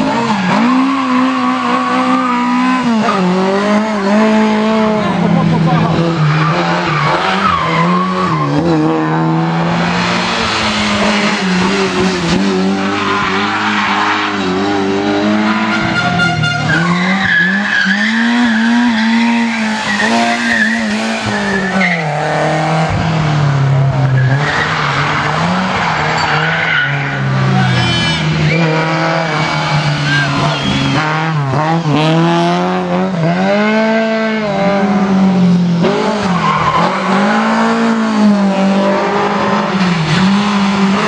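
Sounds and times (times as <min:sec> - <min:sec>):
rally car engines revving: 0:00.0 - 0:41.0
tyres squealing: 0:15.4 - 0:22.4.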